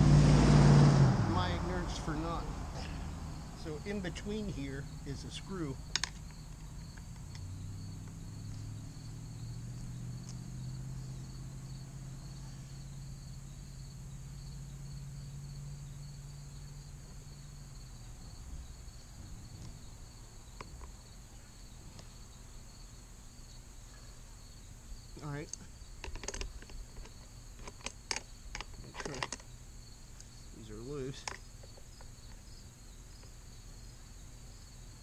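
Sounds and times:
low hum: 0.0 - 24.9
insects chirring: 1.4 - 35.0.

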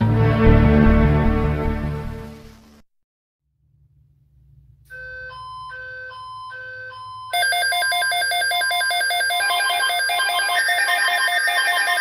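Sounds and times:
pulsing alarm tone: 4.9 - 12.0
electronic beep chime: 7.3 - 12.0.

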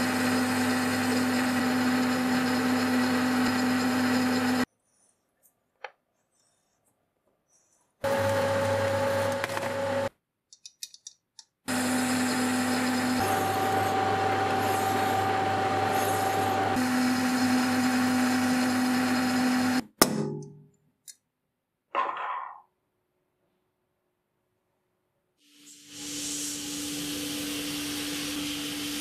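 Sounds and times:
metal lathe motor humming: 0.0 - 4.7, 11.7 - 19.8.

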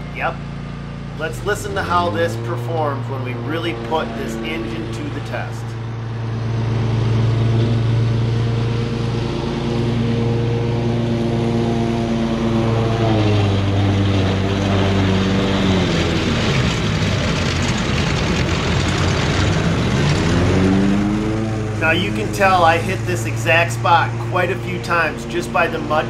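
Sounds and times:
lawn mower engine running: 0.0 - 26.0.

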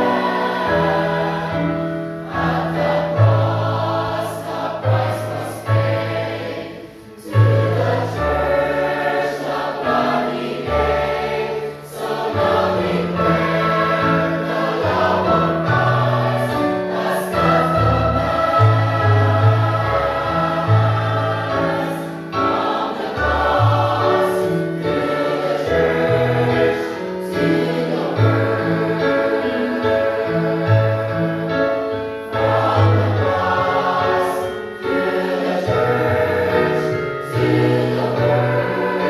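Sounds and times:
choir singing a hymn: 0.0 - 39.0
recorded accompaniment with bass: 17.0 - 22.2.

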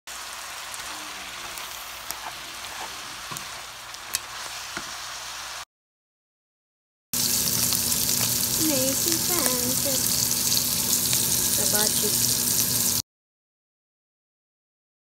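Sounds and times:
noodles sizzling in a hot pan: 0.1 - 5.7, 7.2 - 13.0.

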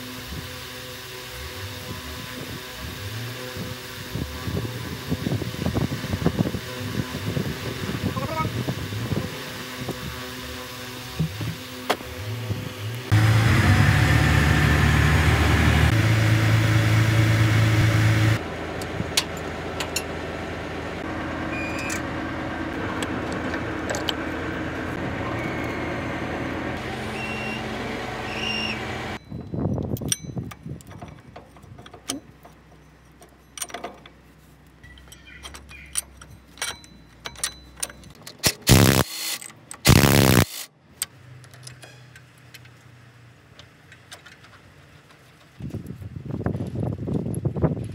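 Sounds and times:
diesel engine running: 0.0 - 29.4, 34.2 - 40.7
squeaks: 34.8 - 37.8
short loud bursts of noise: 38.6 - 40.7.

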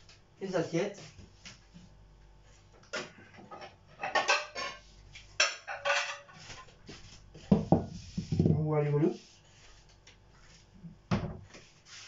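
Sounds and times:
plates clinking and clattering: 3.4 - 4.8, 5.4 - 6.4.

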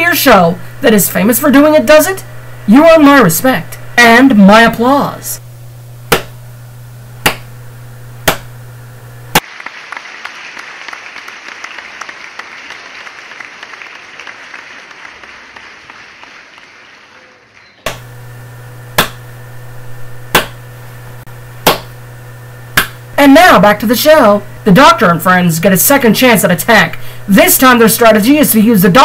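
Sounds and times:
single hand claps: 6.1 - 6.4, 7.2 - 7.5, 8.2 - 8.5, 19.0 - 19.2, 20.3 - 20.6, 21.6 - 21.9, 22.8 - 23.0
dense applause: 9.4 - 17.7.

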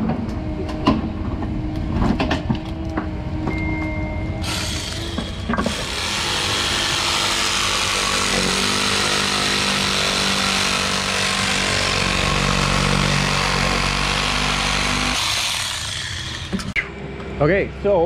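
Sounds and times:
reciprocating saw cutting plastic pipe: 4.4 - 16.8.

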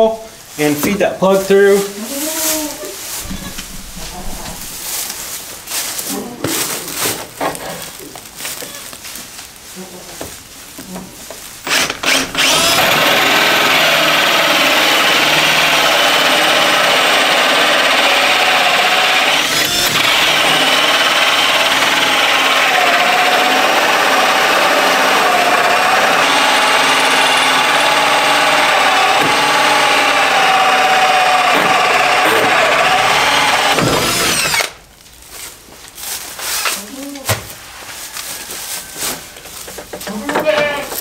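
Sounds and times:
power drill cutting with hole saw: 11.7 - 34.8.

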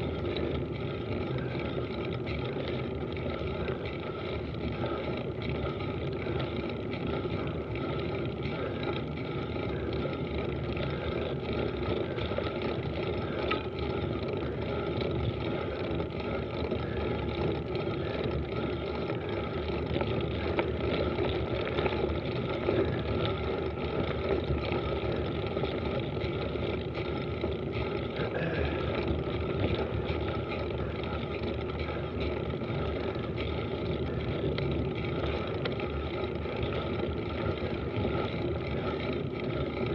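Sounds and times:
bike tyres rolling over gravel: 0.0 - 39.9.

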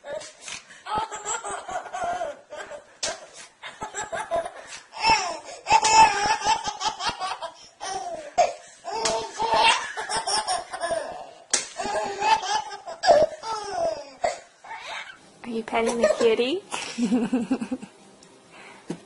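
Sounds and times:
baby laughing: 0.8 - 15.2.

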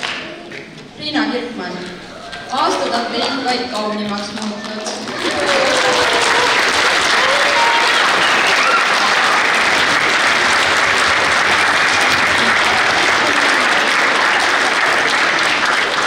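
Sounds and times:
audience clapping: 0.0 - 0.7, 2.3 - 16.0
voices: 1.0 - 6.6.

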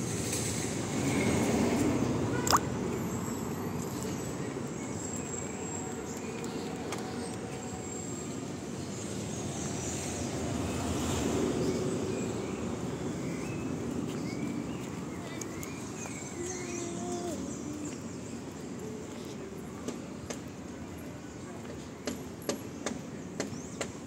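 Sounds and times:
car traffic: 0.0 - 9.4.

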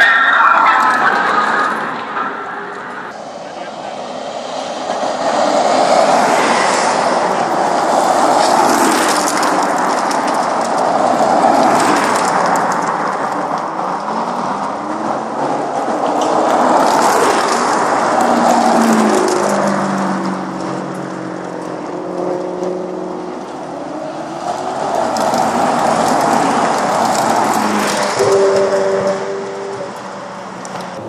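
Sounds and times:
steady rushing noise: 0.0 - 20.9
cars driving past: 0.0 - 31.0
engines revving: 0.0 - 31.0.

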